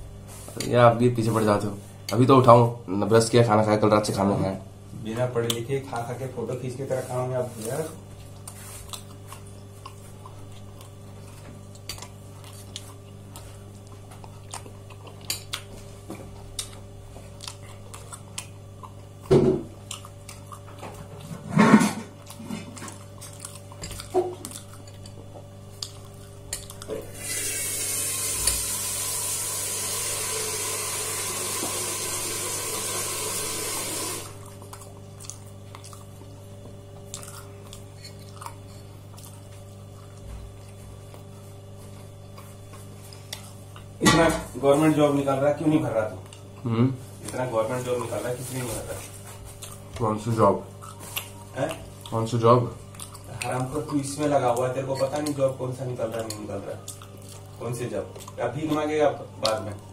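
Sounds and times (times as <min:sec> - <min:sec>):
water tap running: 0:27.1 - 0:34.4.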